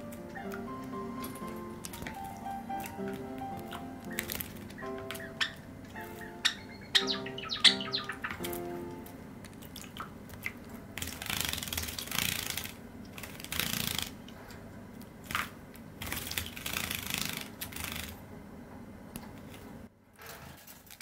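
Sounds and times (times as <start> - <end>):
bird fluttering in water: 9.6 - 14.2, 15.2 - 18.2.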